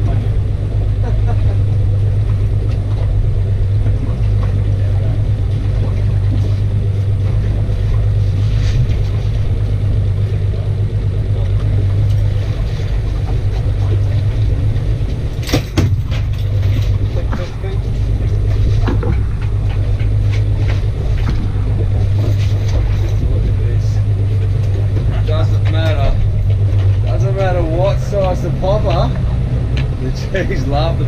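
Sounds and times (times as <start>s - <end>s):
outboard motor idling: 0.0s - 31.0s.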